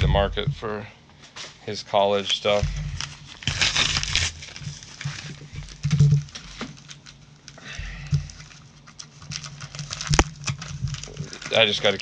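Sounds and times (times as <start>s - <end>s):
paper and plastic rustling: 2.2s - 12.0s.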